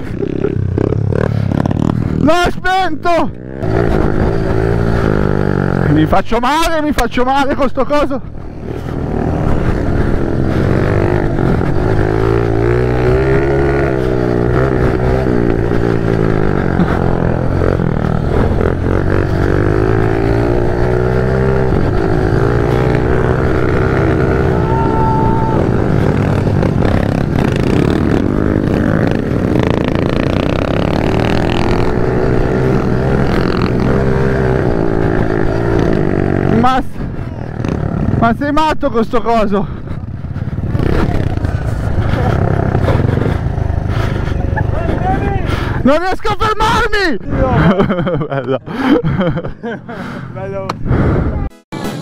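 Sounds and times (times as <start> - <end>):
small motorcycle engine revving: 3.4 - 6.1, 8.6 - 38.3, 39.8 - 45.8.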